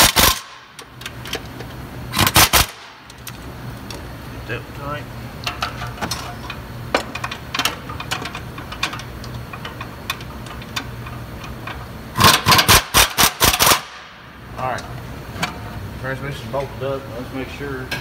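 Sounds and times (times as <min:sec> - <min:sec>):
steady low hum: 0:00.0 - 0:18.0
power wrench bursts: 0:12.2 - 0:13.9.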